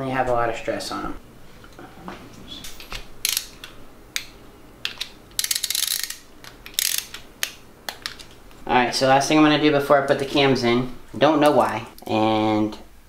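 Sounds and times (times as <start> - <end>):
hand ratchet clicking: 3.2 - 3.6, 4.9 - 8.2.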